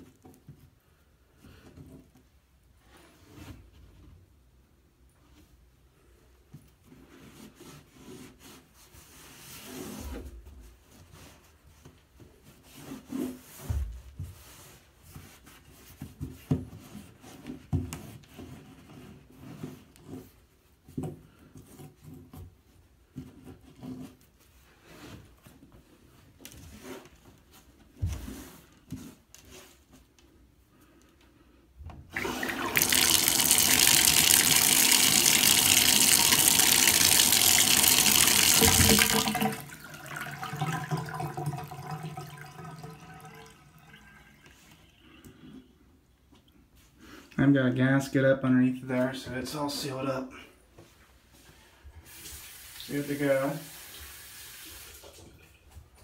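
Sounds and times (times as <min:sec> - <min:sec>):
cloth rag wiping a bathtub drain: 0:00.0 - 0:47.7, 0:48.4 - 0:56.0
soft knocks and scrapes: 0:06.4 - 0:30.4
tap water running: 0:32.1 - 0:45.1, 0:52.1 - 0:55.4.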